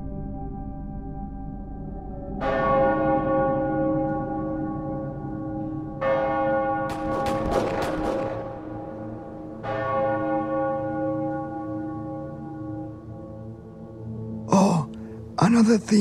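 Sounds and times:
church bell tolling: 0:02.4 - 0:13.2.

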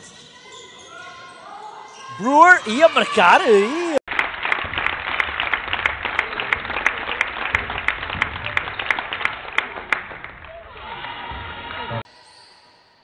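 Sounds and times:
crowd hubbub: 0:02.1 - 0:04.0
rhythmic clapping: 0:02.3 - 0:10.6.

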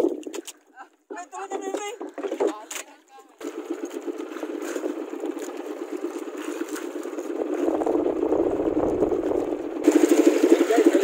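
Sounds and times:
small boat engine puttering: 0:01.2 - 0:11.0
low rumble: 0:06.0 - 0:10.0.

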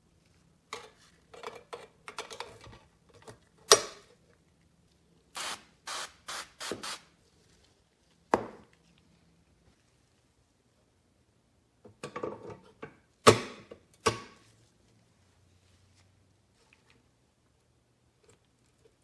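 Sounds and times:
aerosol spray hisses: 0:05.4 - 0:07.1.

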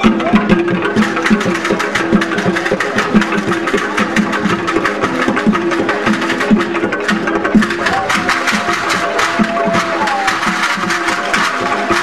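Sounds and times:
pitched drum beats: 0:00.0 - 0:12.0.

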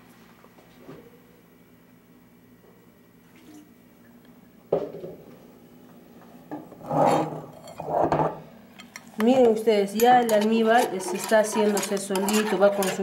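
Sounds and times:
rubbing scraping sounds: 0:10.6 - 0:13.0.

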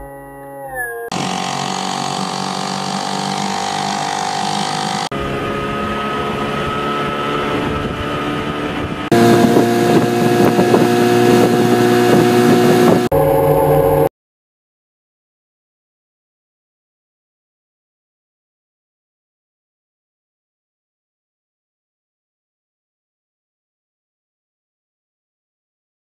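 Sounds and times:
outboard motor running: 0:01.1 - 0:14.1.

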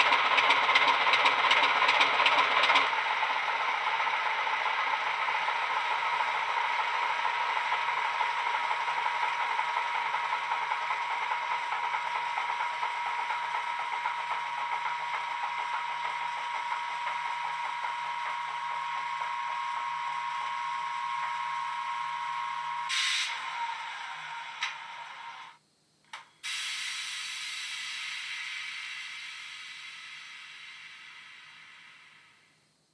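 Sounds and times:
model diesel engine sound idling: 0:00.0 - 0:25.4
engine shutting down: 0:00.0 - 0:25.6, 0:26.5 - 0:32.5
click: 0:24.6 - 0:24.8, 0:26.0 - 0:26.3
steady hiss: 0:25.8 - 0:32.9.

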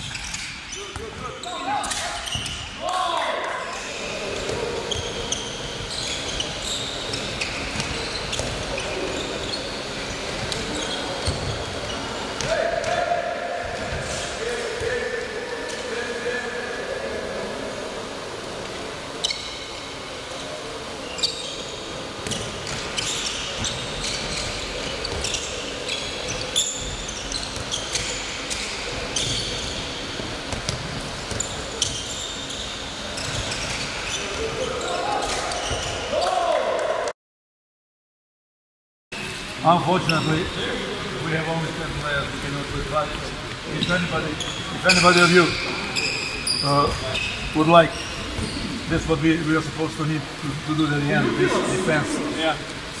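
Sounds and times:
sports shoes squeaking: 0:00.0 - 0:02.8, 0:03.7 - 0:13.0, 0:19.0 - 0:36.4, 0:40.0 - 0:40.6, 0:42.9 - 0:49.6.

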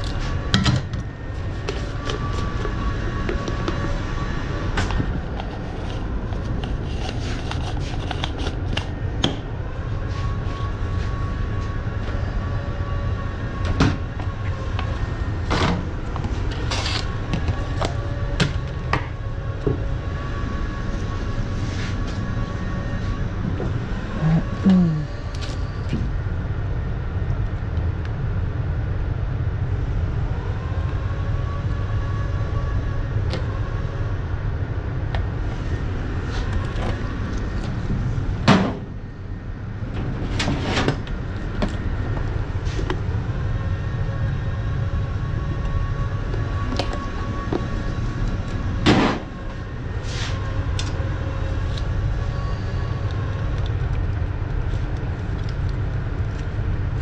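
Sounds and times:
low machine rumble: 0:00.0 - 0:57.0
faint wavering whines: 0:28.4 - 0:55.3.

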